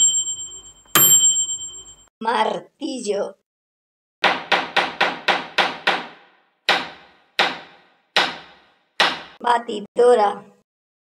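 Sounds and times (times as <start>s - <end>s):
hammer striking: 0.0s - 2.0s, 4.2s - 9.4s.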